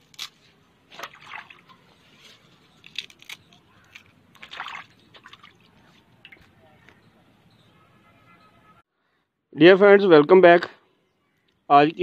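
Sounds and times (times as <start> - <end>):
water sloshing in a metal basin: 0.9 - 2.1, 4.3 - 6.6.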